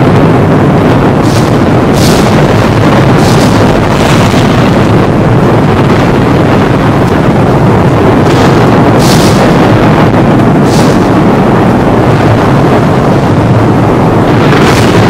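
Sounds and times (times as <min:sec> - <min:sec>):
rolling thunder: 0:00.0 - 0:15.0
sharp thunder cracks: 0:01.2 - 0:11.4, 0:14.2 - 0:15.0.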